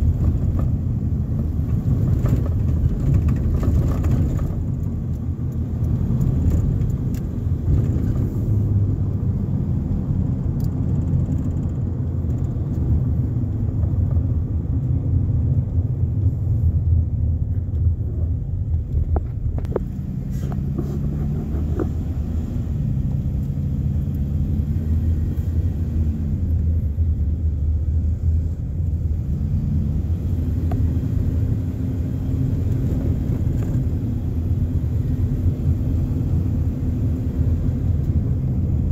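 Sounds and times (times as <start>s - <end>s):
road noise rumble: 0.0s - 38.9s
car engine revving: 19.6s - 28.2s.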